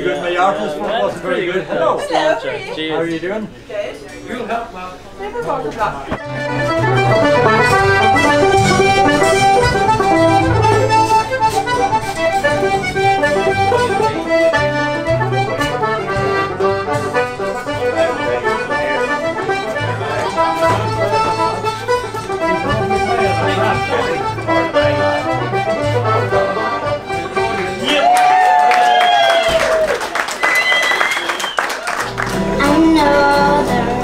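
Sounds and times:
accordion folk tune: 6.1s - 27.9s, 32.0s - 34.0s.

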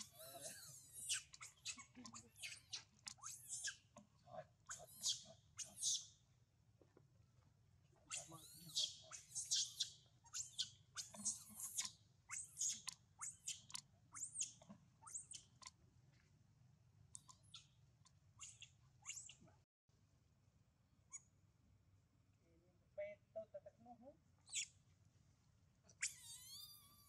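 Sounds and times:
baby monkey squealing: 0.0s - 3.9s, 4.7s - 6.2s, 8.1s - 15.7s, 18.4s - 19.4s, 24.4s - 24.8s, 26.0s - 27.0s.

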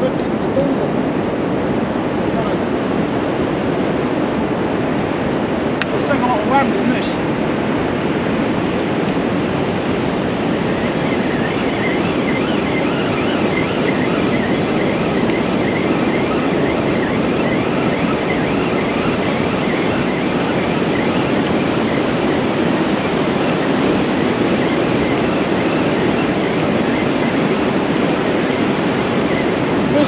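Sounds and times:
surf washing: 0.0s - 30.0s
wind: 0.0s - 30.0s
fishing reel whine: 6.0s - 30.0s.

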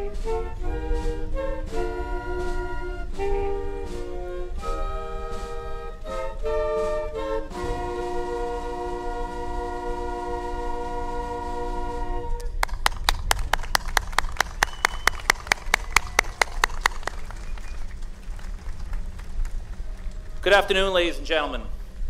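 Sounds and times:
concert band playing held chord: 0.0s - 12.4s
crowd applause: 12.5s - 21.2s.

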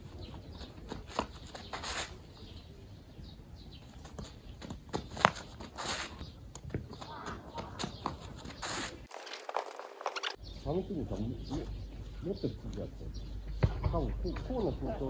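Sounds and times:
footsteps on gravel: 3.8s - 10.4s.

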